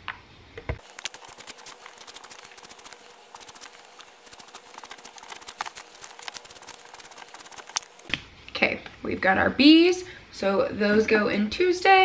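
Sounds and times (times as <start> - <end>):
marker scratching on paper: 0.8 - 8.1
paper rustling: 0.8 - 8.1.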